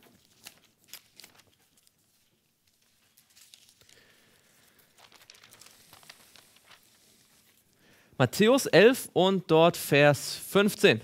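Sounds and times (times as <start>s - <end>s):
thin pages rustling: 0.0s - 7.6s.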